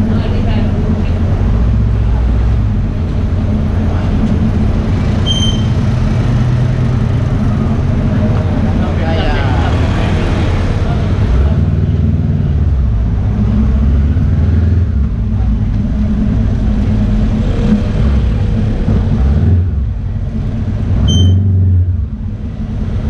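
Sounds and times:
motorcycle engine revving: 0:00.0 - 0:23.0
short high beep: 0:05.2 - 0:05.8, 0:21.1 - 0:21.5.

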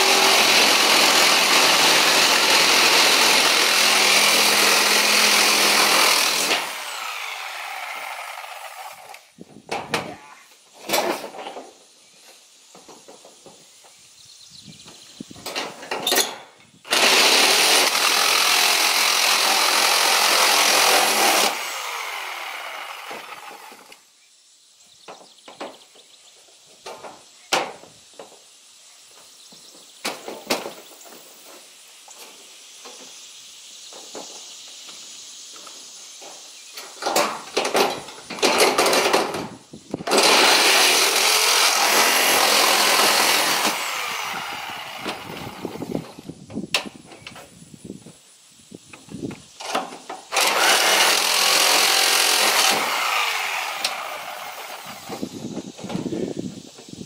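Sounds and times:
reciprocating saw cutting sheet steel: 0:00.0 - 0:09.2, 0:16.9 - 0:23.9, 0:40.1 - 0:45.9, 0:50.3 - 0:55.3.

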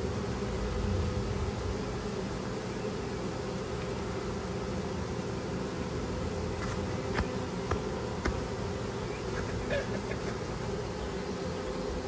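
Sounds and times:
bee swarm buzzing: 0:00.0 - 0:12.0.

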